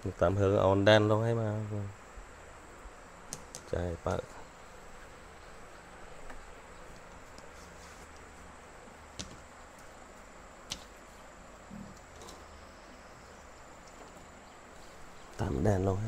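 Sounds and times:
sharp clicks: 3.3 - 3.7.

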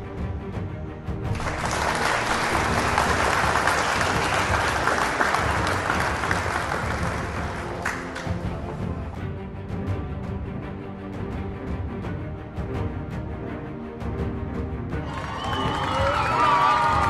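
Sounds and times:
background music: 0.0 - 17.0
audience applauding: 1.3 - 8.6, 15.0 - 17.0.

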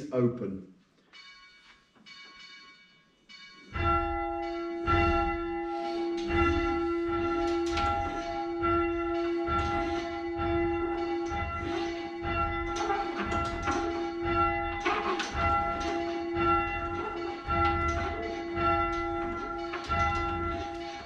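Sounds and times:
church bell ringing: 1.0 - 21.0.

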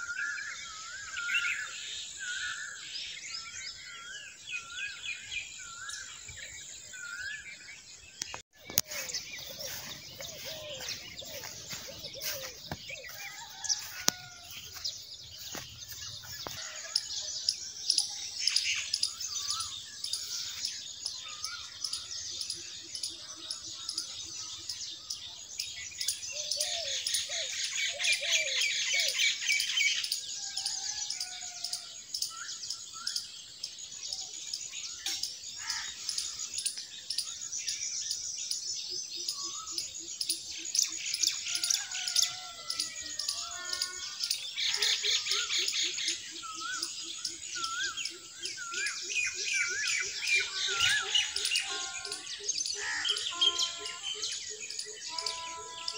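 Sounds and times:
small birds chirping: 0.0 - 55.9.

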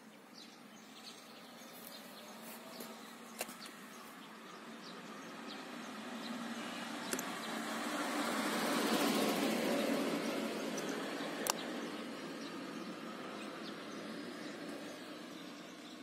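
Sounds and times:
motor vehicle passing: 1.7 - 15.9.

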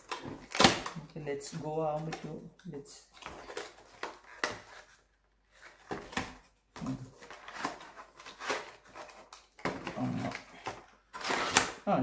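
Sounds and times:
packaging crinkling: 3.0 - 11.8.

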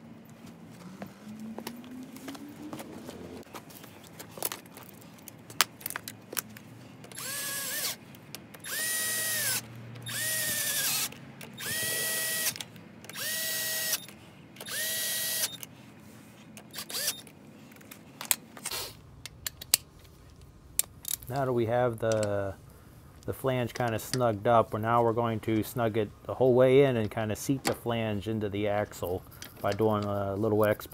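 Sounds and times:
cordless power tool whine: 7.1 - 8.0, 8.6 - 15.6, 16.7 - 17.2.

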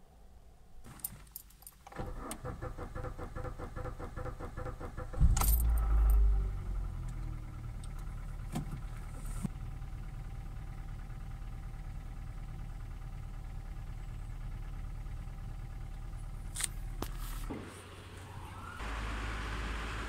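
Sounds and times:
starter cranking engine: 1.9 - 6.1
car engine idling: 1.9 - 20.0.

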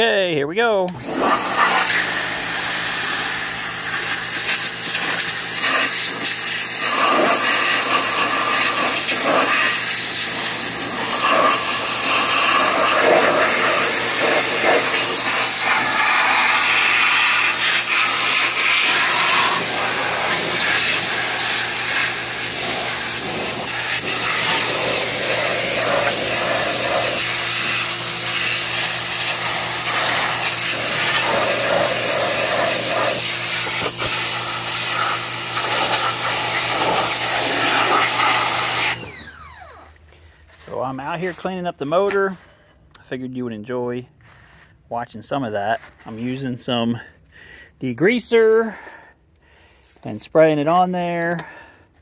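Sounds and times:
pressure washer hum: 0.8 - 42.6
pressure washer jet spattering metal: 0.9 - 39.2.

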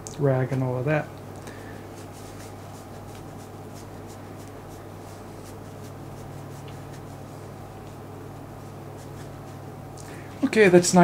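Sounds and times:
cotton swab rubbing on metal: 2.0 - 7.6, 8.5 - 9.8.

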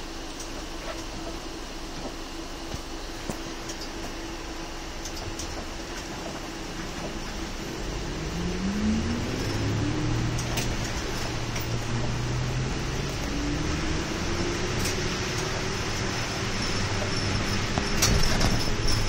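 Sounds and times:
tyres hissing on wet road: 0.0 - 19.0
bus engine rising in pitch: 5.7 - 19.0.

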